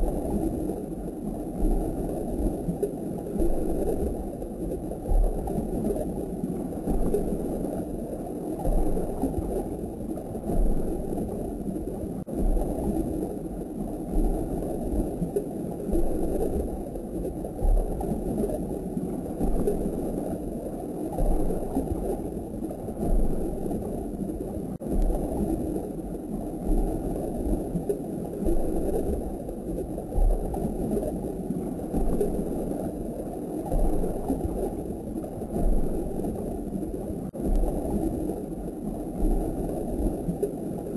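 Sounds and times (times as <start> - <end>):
aquarium water gurgling: 0.0 - 40.9
soft low thumps: 1.6 - 2.0, 5.0 - 6.0, 6.8 - 7.5, 8.6 - 11.6, 12.2 - 13.2, 14.1 - 15.3, 17.6 - 18.4, 19.3 - 20.0, 21.1 - 22.1, 22.9 - 25.8, 26.6 - 27.8, 28.4 - 29.3, 30.1 - 31.1, 31.9 - 32.5, 33.7 - 34.7, 35.4 - 36.4, 37.3 - 38.3, 39.1 - 40.2.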